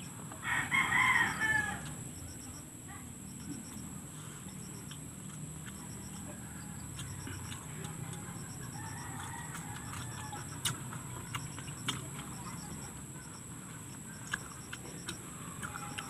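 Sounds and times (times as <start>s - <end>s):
steady high hum: 0.0s - 16.0s
chewing mouth sounds: 3.4s - 16.0s.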